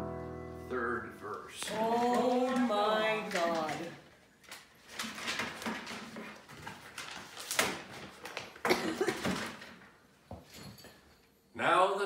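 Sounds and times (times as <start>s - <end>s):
paper pages rustling: 1.3s - 8.7s.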